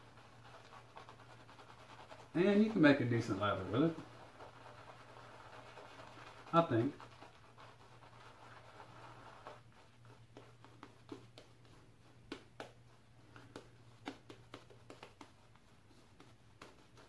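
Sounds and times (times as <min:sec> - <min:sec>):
shaving brush lathering soap: 0:00.0 - 0:12.0.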